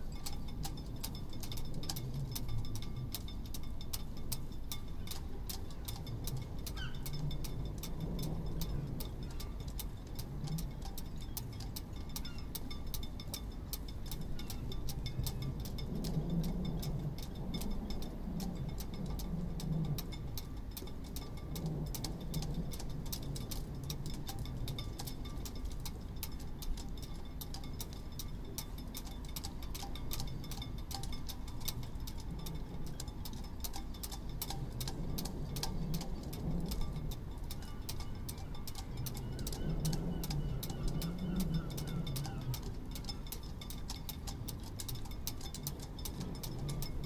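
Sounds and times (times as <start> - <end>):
low wind rumble: 0.0 - 47.0
rigging lines clinking against masts: 0.0 - 47.0.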